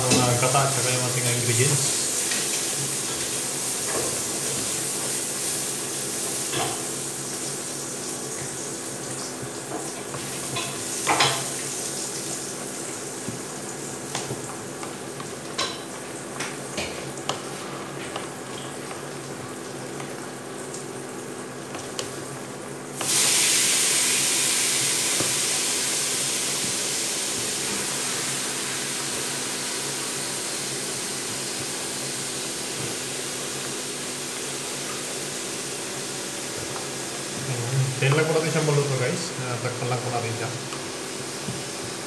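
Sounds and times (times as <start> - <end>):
loud sizzling hiss: 0.0 - 9.4, 23.0 - 32.8.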